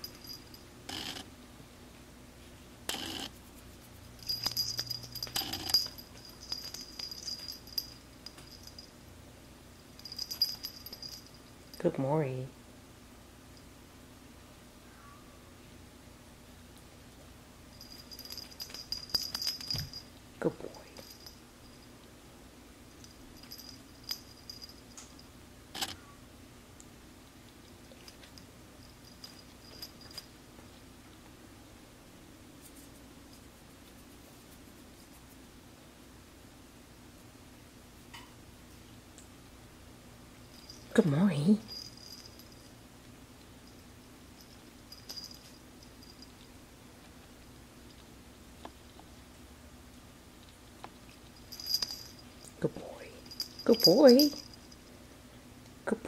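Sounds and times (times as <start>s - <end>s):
cat collar bell jingling: 0.0s - 1.2s, 4.0s - 9.0s, 10.0s - 11.9s, 17.7s - 22.0s, 22.9s - 25.9s, 27.8s - 30.4s, 40.4s - 42.8s, 43.6s - 46.6s, 51.0s - 54.9s.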